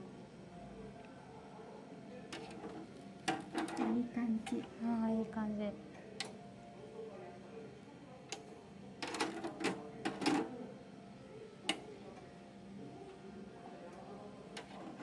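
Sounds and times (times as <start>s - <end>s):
metal tongs clicking on wire grill: 6.2s - 6.4s.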